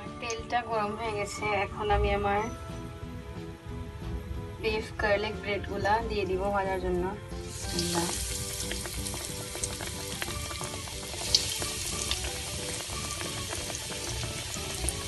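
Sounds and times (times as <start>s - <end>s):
deep-frying sizzle with crackling pops: 7.4s - 15.0s.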